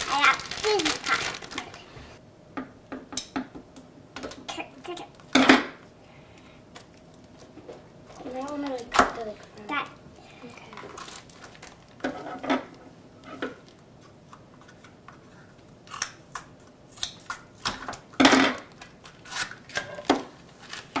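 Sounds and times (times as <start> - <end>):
foil packaging crinkling: 0.0 - 2.2, 8.1 - 9.6, 10.5 - 12.0, 20.4 - 21.0
scissors snipping foil: 18.6 - 20.0.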